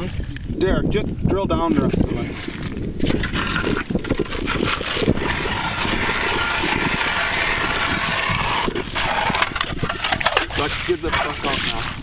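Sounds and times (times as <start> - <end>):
power ice auger boring: 3.0 - 11.9.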